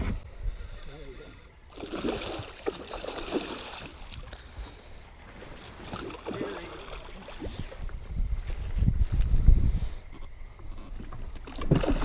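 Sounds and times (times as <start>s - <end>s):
fish thrashing and splashing: 1.7s - 4.3s, 5.7s - 7.8s, 11.3s - 12.0s.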